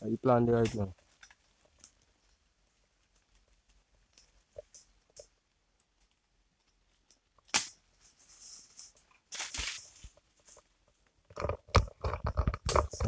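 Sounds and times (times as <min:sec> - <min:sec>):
twig snapping: 0:07.0 - 0:07.8
leaves rustling in undergrowth: 0:08.0 - 0:10.7.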